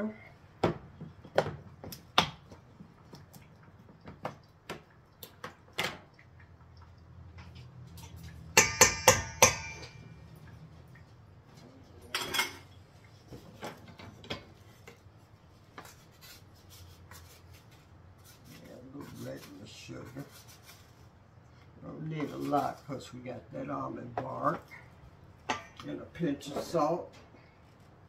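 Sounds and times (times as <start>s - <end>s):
utensils and dishes clinking: 7.4s - 10.4s, 12.0s - 12.8s.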